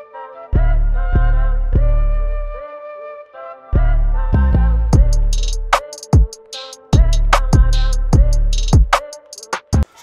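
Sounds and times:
flute-like melody: 0.0s - 10.0s
deep held bass notes: 0.6s - 2.6s, 3.8s - 5.8s, 7.0s - 9.0s
instrumental hip hop music: 3.4s - 10.0s.

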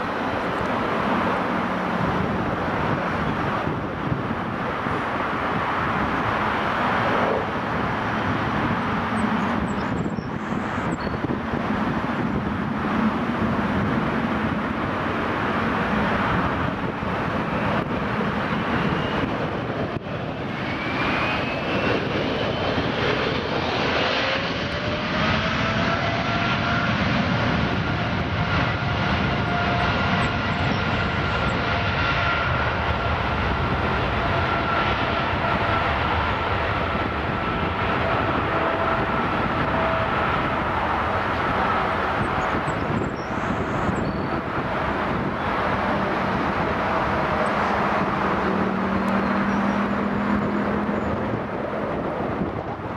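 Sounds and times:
jet engines spooling up: 0.1s - 52.9s.

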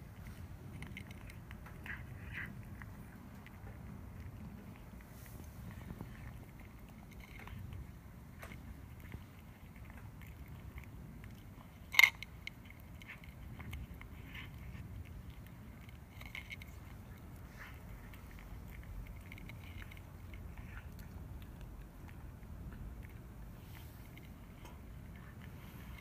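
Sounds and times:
cat chewing food: 0.0s - 26.0s.

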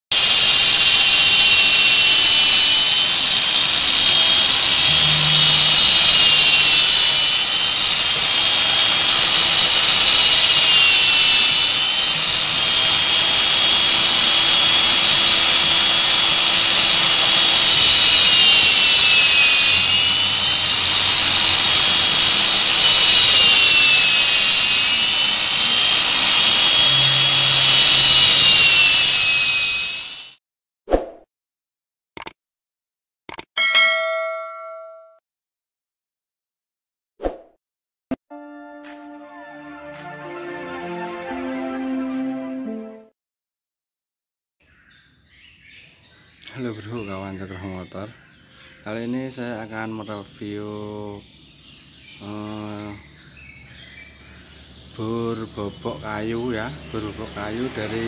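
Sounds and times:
drill bit cutting wood: 0.1s - 30.4s, 55.0s - 58.0s
electric drill whining: 0.1s - 30.4s.

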